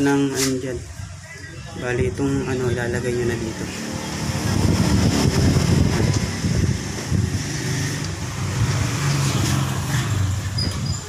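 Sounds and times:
vehicle engine running: 3.3s - 10.6s.

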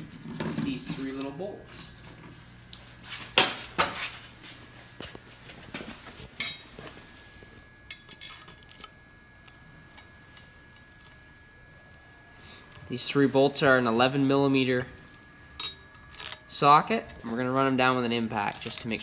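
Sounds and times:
metal parts clinking: 7.9s - 11.2s, 14.7s - 19.0s.

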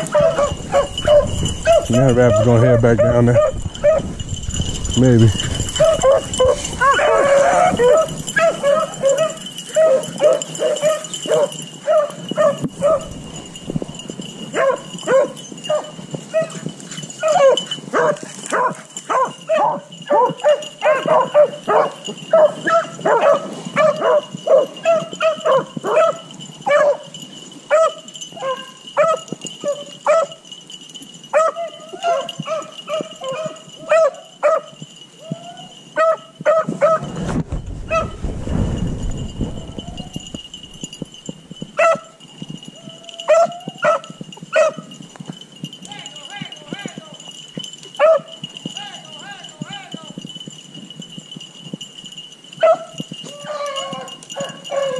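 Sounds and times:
dogs baying and yelping: 0.0s - 30.5s, 31.3s - 37.2s, 37.8s - 38.3s, 39.0s - 45.4s, 48.0s - 48.4s, 52.6s - 54.9s
low rumble: 0.4s - 7.0s, 37.3s - 41.0s.

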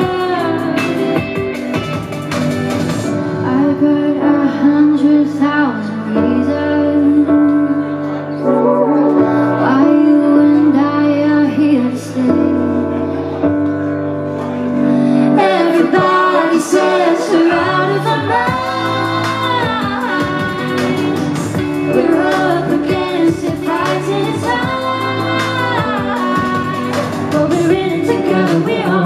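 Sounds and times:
woman singing: 0.0s - 1.6s, 3.4s - 13.1s, 15.2s - 29.0s
electric guitar: 0.0s - 29.0s
sustained keyboard notes: 7.4s - 11.4s.

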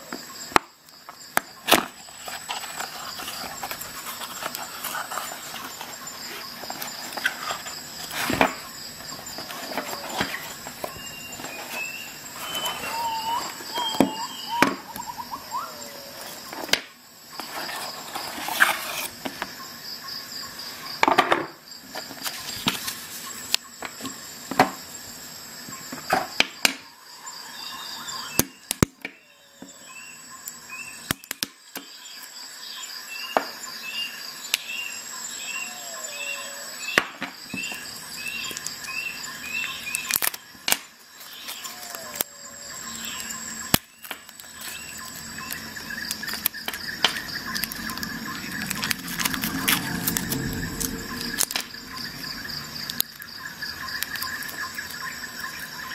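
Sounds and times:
knife cutting plastic packaging: 1.6s - 14.0s, 43.0s - 51.6s
cardboard box handled: 1.6s - 14.2s
faint high chirps: 8.6s - 16.5s.

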